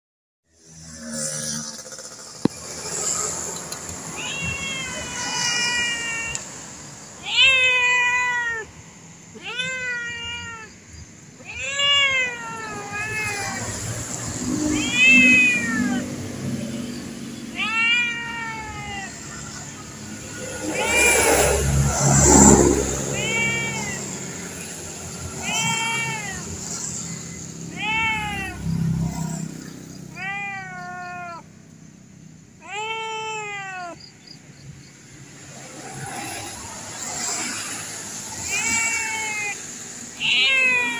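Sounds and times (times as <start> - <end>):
cat meowing: 4.0 - 16.2, 17.5 - 29.5, 30.1 - 31.5, 32.6 - 34.1, 38.4 - 40.9.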